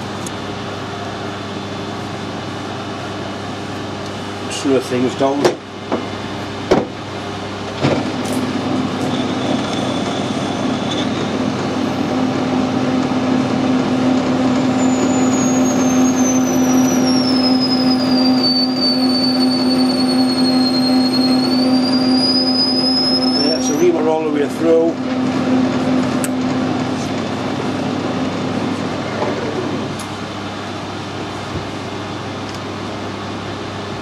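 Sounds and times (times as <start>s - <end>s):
lathe running hum: 0.0s - 34.0s
reamer high-pitched squeal: 8.5s - 11.4s, 14.4s - 24.4s.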